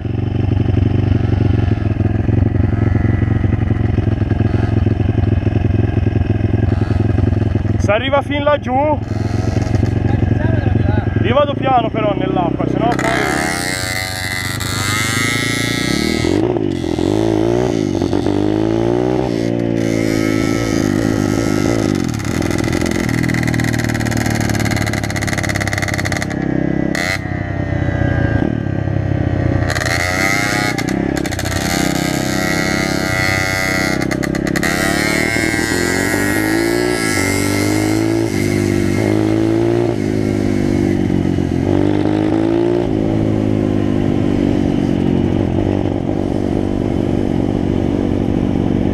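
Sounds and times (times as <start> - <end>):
dirt bike engine revving: 0.4 - 48.9
wind noise: 27.7 - 48.9.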